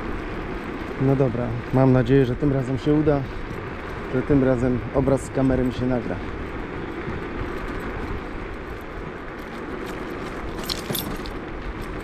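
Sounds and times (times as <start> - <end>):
steady rushing noise: 0.0 - 12.0
light metallic jingle: 8.7 - 12.0.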